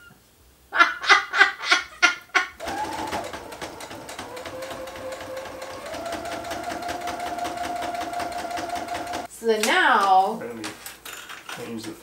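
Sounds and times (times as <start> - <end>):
sewing machine stitching: 2.6 - 9.3.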